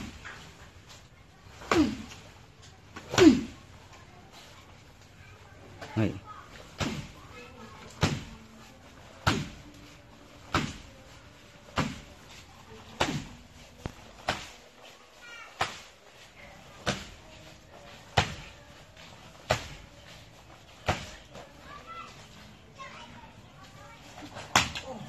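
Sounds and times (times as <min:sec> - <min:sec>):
kicks thudding on tree trunk: 0:09.2 - 0:09.6.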